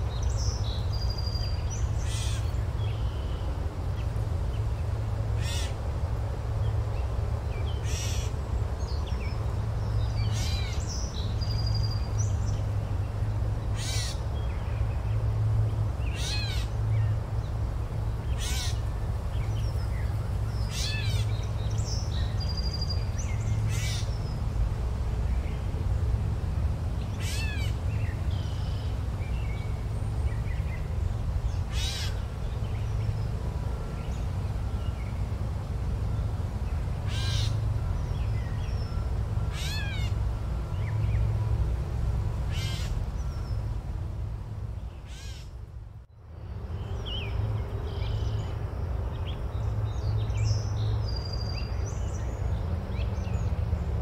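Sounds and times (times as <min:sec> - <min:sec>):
bird calling: 0:18.4 - 0:18.8, 0:37.0 - 0:37.6, 0:39.5 - 0:40.2, 0:45.0 - 0:45.5.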